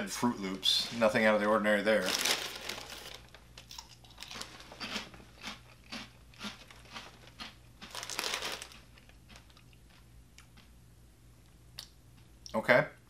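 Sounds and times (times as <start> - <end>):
plastic bag crinkling: 0.9 - 5.8, 6.4 - 9.5
chewing crunchy cereal: 2.1 - 10.7.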